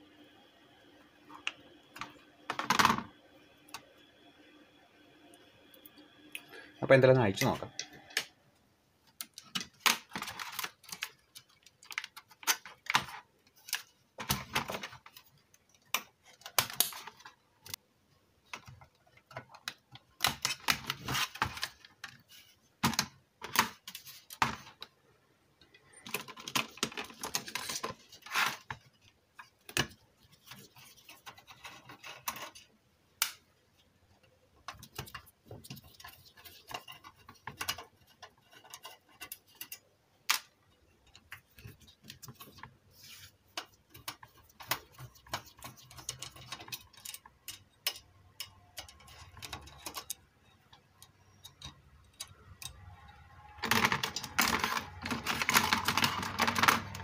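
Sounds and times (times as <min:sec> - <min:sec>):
metallic clicks scrapes and rattles: 0:34.7 - 0:39.9, 0:43.5 - 0:57.0.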